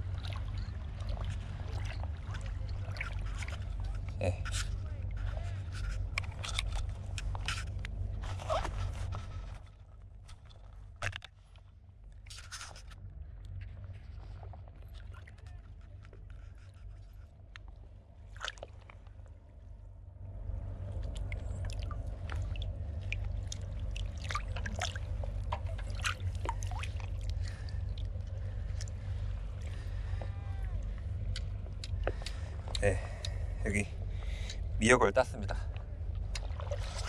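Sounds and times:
seawater sloshing and splashing: 0.0s - 19.8s, 20.5s - 34.7s, 35.5s - 37.0s
steady low rumble: 0.0s - 37.0s
clicks in water: 21.0s - 28.1s.

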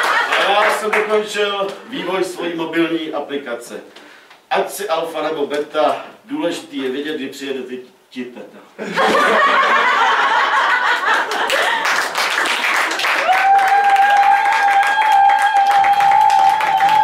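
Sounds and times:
audience applause: 0.0s - 1.1s, 9.9s - 17.0s
audience laughter: 8.8s - 12.1s.

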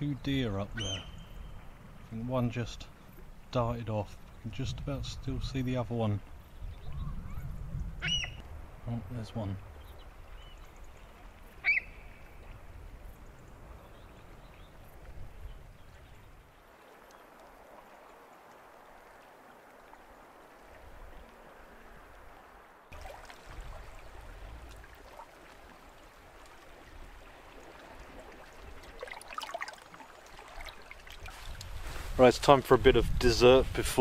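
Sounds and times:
water washing over pebbles: 22.9s - 32.2s.

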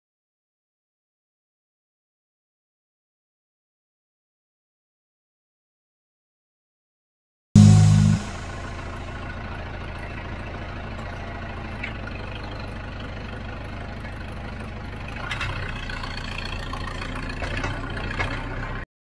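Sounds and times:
tractor engine running: 7.6s - 18.8s
loader and forks rattling: 15.2s - 18.8s.

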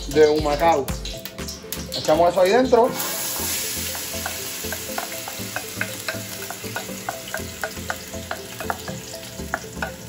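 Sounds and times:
vegetables sizzling in hot oil: 2.9s - 10.0s.

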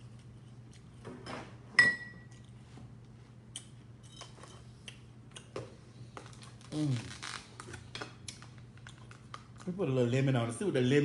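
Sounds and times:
low steady hum: 0.0s - 11.0s
tableware clinking: 1.3s - 2.3s.

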